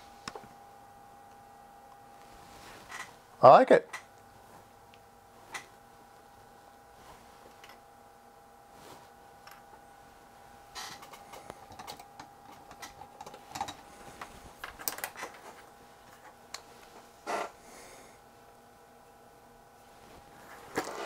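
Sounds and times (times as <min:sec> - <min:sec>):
faint steady tone: 0:00.0 - 0:14.5
probe handling clicks and rattles: 0:10.8 - 0:16.7.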